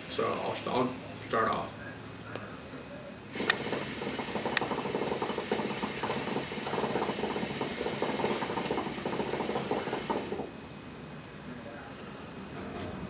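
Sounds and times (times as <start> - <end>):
hookah water bubbling: 3.3 - 10.6.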